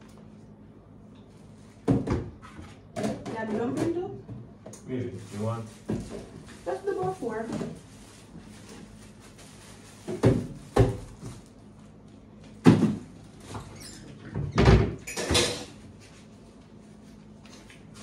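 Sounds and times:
cupboard doors opening and closing: 13.6s - 15.7s.

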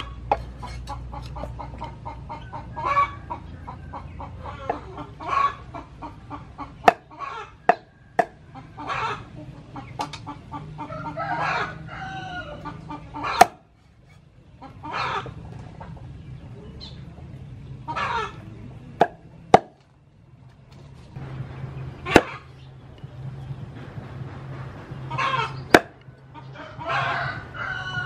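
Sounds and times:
chickens clucking: 0.0s - 28.0s
cleaver chopping on wooden board: 6.8s - 7.1s, 7.7s - 8.4s, 19.0s - 19.8s, 25.7s - 26.0s
rooster crowing: 10.7s - 13.4s, 26.4s - 28.0s.

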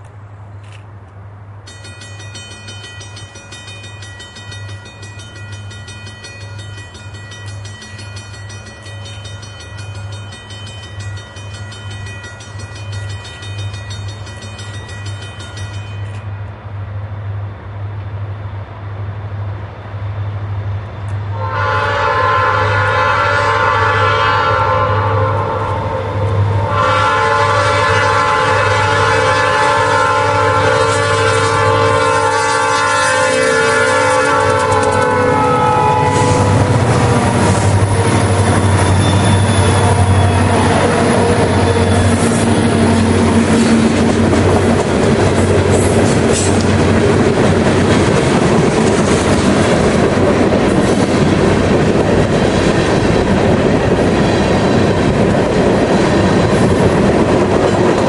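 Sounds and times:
diesel locomotive rumble: 0.0s - 58.0s
thin high ringing tone: 1.7s - 16.5s, 37.4s - 43.8s
locomotive air horn: 21.3s - 42.9s.

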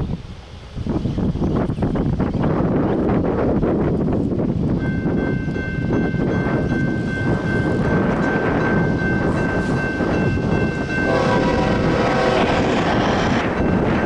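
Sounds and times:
locomotive engine and wheels rumbling: 0.0s - 14.0s
wind on microphone: 0.0s - 14.0s
train air horn: 10.9s - 14.0s.

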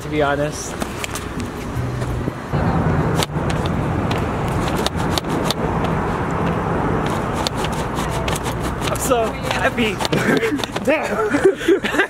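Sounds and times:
street traffic noise: 0.0s - 12.0s
car engine hum: 0.5s - 11.6s.

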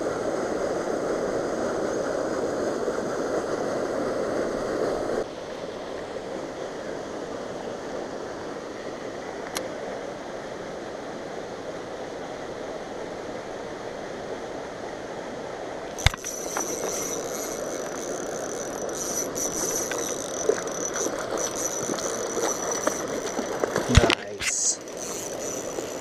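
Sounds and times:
flowing water: 0.0s - 26.0s
fishing reel ticking and whining: 15.9s - 26.0s.

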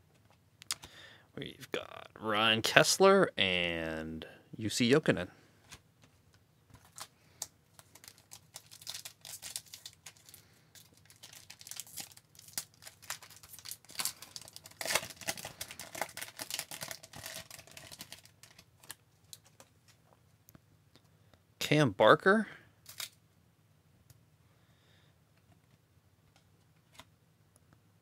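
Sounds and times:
wrapper tearing and crinkling: 7.8s - 19.5s, 22.8s - 23.2s.

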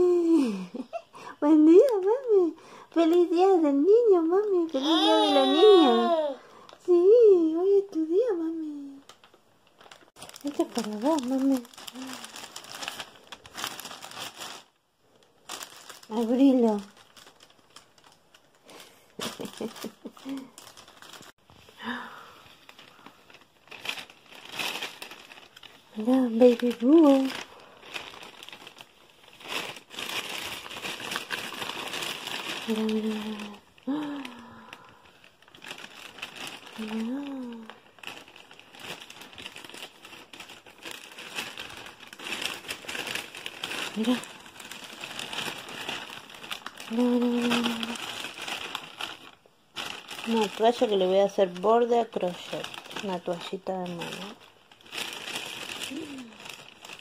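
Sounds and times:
woman speaking: 1.4s - 9.1s, 10.4s - 12.2s, 16.1s - 17.0s, 25.9s - 27.4s, 32.7s - 34.4s, 36.8s - 37.8s, 46.9s - 48.0s, 50.2s - 54.4s
plastic bag crinkling: 1.7s - 57.0s.

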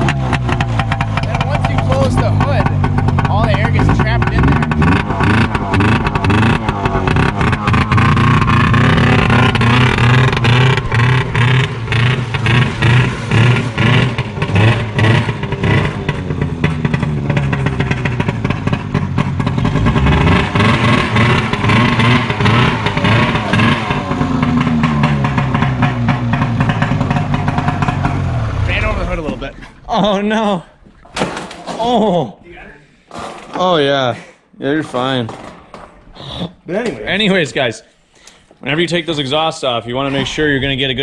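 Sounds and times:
loud snowmobile engine revving: 0.0s - 30.6s.

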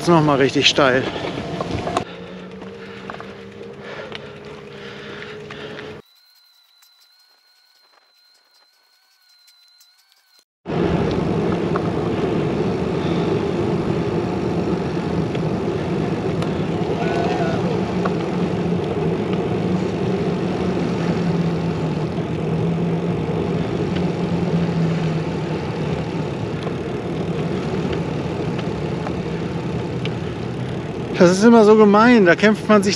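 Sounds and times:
low hum: 1.1s - 32.4s.

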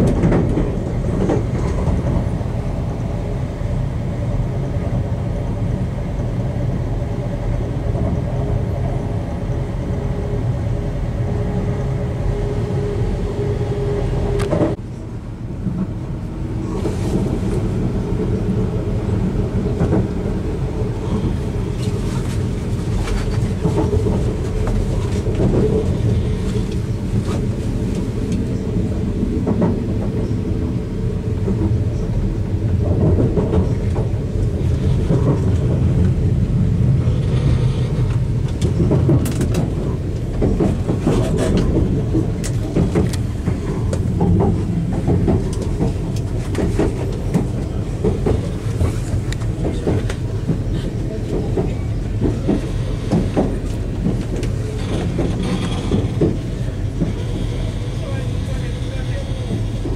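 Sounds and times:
train carriage rumble: 0.0s - 59.9s
wheels clicking over rail joints: 31.3s - 59.9s.

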